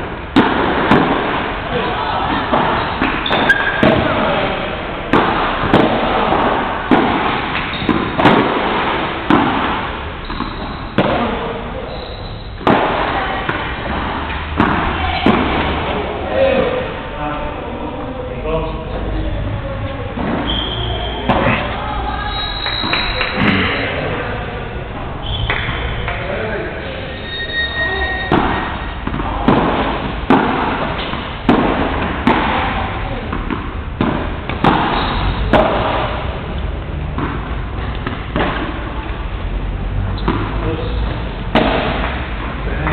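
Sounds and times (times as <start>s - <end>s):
ball struck by rackets: 0.3s - 1.6s, 2.2s - 4.2s, 5.1s - 11.4s, 12.6s - 16.0s, 28.3s - 39.2s, 39.9s - 42.6s
ball rebounding off court: 5.1s - 11.4s, 28.3s - 36.3s, 40.2s - 42.5s.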